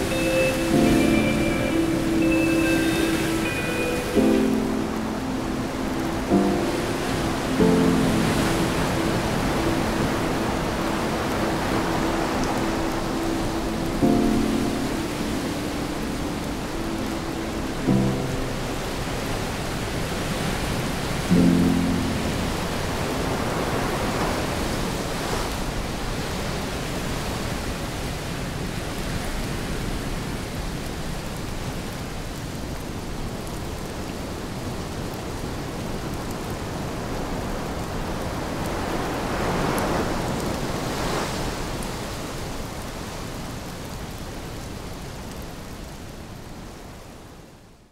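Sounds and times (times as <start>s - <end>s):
waves breaking: 0.0s - 30.1s, 36.7s - 44.5s
rain falling: 0.0s - 47.9s.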